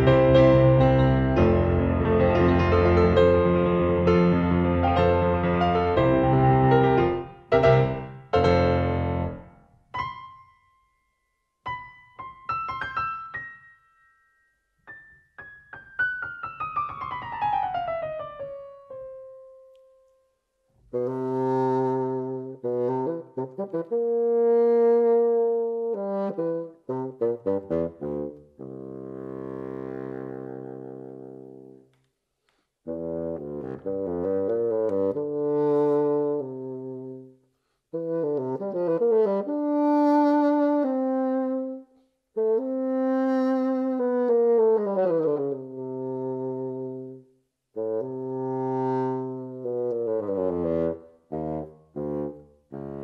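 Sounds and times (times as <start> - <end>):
bassoon melody: 0.0 - 10.4, 20.8 - 31.8, 32.9 - 53.0.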